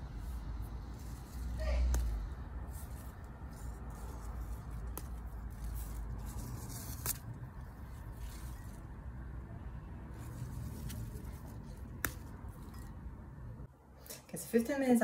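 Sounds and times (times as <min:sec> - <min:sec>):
bean plants rustling: 0:00.0 - 0:09.4, 0:10.0 - 0:13.0
bean pods snapping: 0:01.3 - 0:03.0, 0:03.9 - 0:08.8, 0:10.8 - 0:13.0.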